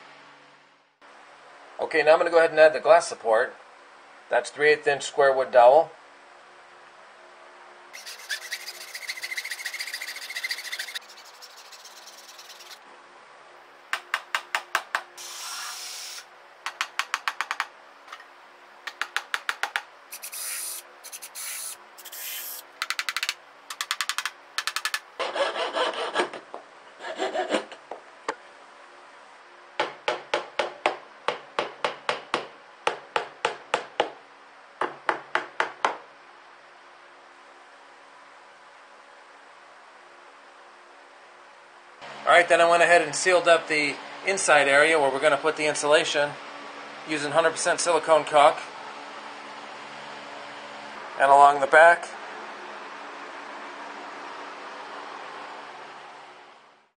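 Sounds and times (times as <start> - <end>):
cordless drill whining: 15.2 - 16.2
quick sharp taps on wood: 18.9 - 19.9.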